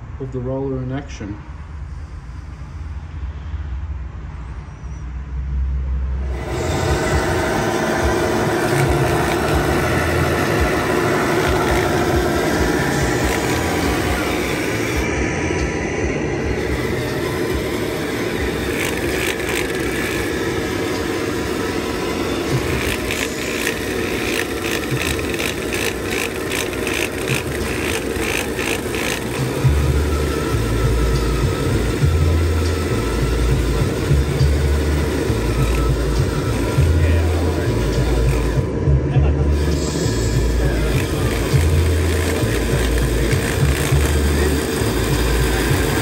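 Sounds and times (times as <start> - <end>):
mechanical whine of toy roller: 6.2 - 46.0
quick ticks: 22.6 - 29.8.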